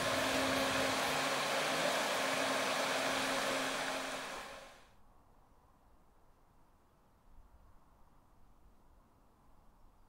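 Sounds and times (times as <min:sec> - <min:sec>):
stream rushing: 0:00.0 - 0:04.8.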